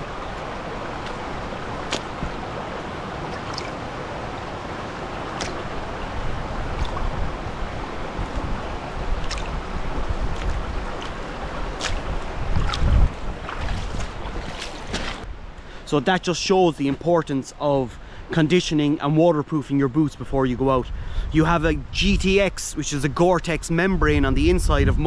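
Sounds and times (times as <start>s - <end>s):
heavy low splashing: 0.0s - 15.3s
shallow stream running: 0.0s - 20.1s
boots stepping in water: 0.2s - 3.9s, 5.2s - 15.3s.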